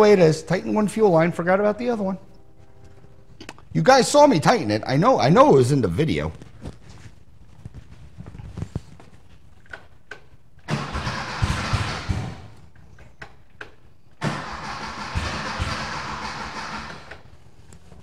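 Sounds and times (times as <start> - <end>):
starter cranking engine: 10.7 - 12.6, 14.2 - 17.3.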